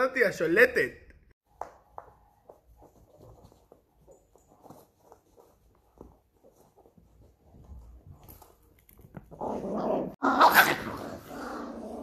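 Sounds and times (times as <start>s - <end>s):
small dog growling: 9.3s - 12.0s.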